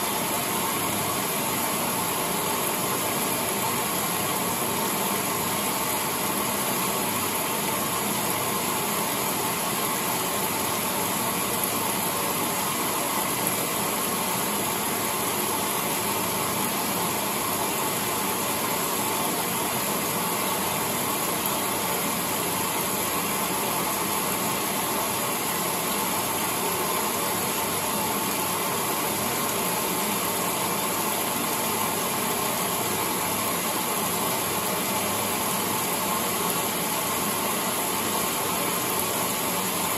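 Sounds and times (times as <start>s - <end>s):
washing machine whirring: 0.0s - 39.9s.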